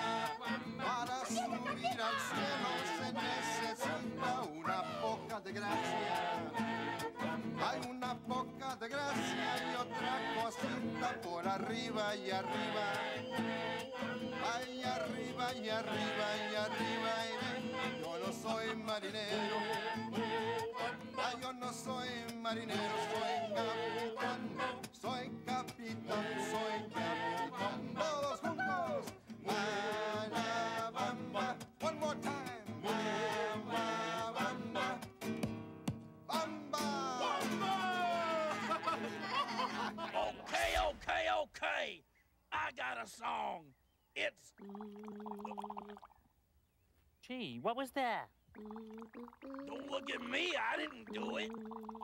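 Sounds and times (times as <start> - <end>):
man singing: 0.0 - 6.6, 7.6 - 35.1, 36.3 - 39.4
puppet voices singing along: 0.0 - 35.2, 36.3 - 41.1, 48.6 - 52.0
nylon-string guitar: 0.0 - 40.3.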